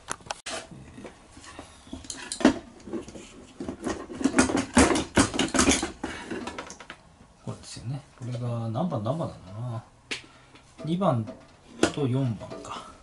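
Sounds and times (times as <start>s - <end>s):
linkage and fittings rattling: 1.9s - 7.0s
metal parts knocking and clinking: 3.7s - 6.8s.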